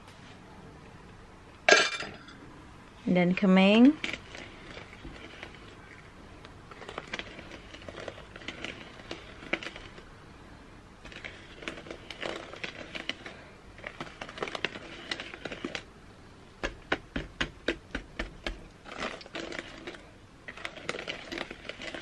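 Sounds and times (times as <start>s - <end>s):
utensil scraping a plastic bowl: 3.7s - 15.9s, 16.6s - 22.0s.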